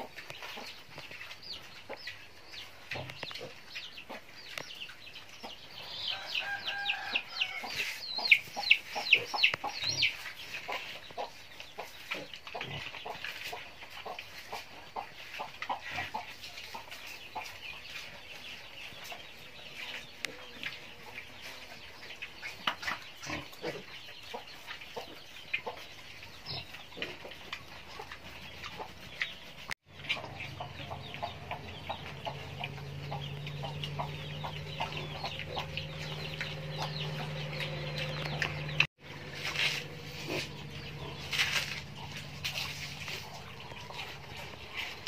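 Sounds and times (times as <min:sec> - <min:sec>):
chickens clucking: 0:00.0 - 0:45.0
pigs rooting and chewing food: 0:00.0 - 0:45.0
steady low hum: 0:30.5 - 0:44.6.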